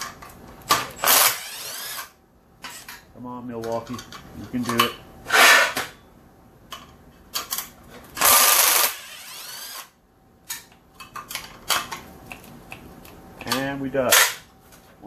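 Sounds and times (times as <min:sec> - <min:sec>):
impact wrench whirring: 0:01.0 - 0:02.8, 0:08.2 - 0:09.9.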